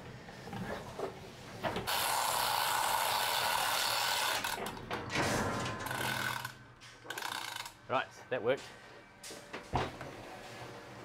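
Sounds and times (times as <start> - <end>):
ratchet clicking: 5.9 - 7.8.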